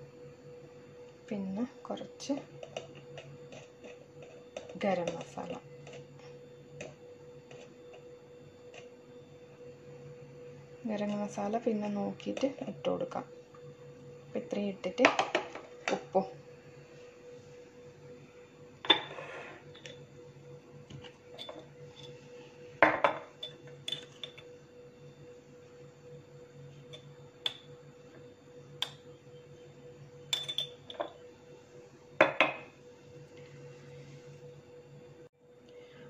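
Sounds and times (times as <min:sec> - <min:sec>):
steel spoon clinking on dishes: 0:30.3 - 0:31.1.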